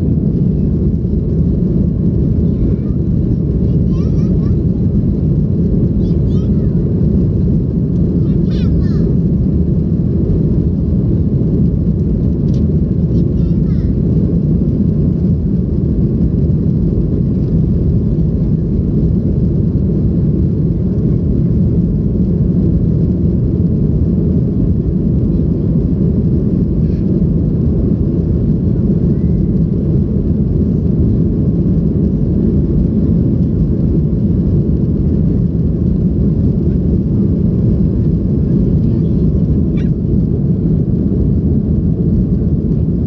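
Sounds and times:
air rushing over fuselage: 0:00.0 - 0:43.0
airplane engine rumble: 0:00.0 - 0:43.0.

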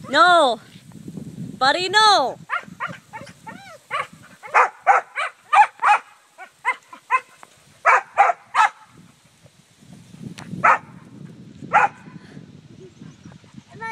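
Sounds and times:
dog yapping excitedly: 0:02.5 - 0:08.8, 0:11.7 - 0:12.0.

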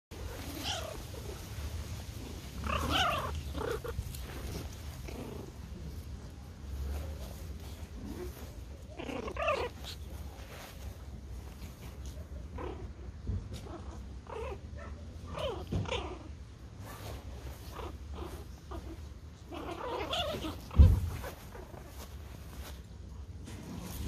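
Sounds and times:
puppies growling and yipping: 0:00.2 - 0:06.0, 0:07.9 - 0:10.8, 0:11.5 - 0:22.0
sharp thump: 0:20.7 - 0:21.2.

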